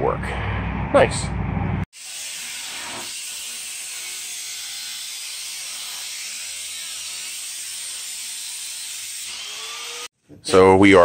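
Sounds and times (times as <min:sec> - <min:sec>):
angle grinder cutting steel: 0:02.0 - 0:10.1.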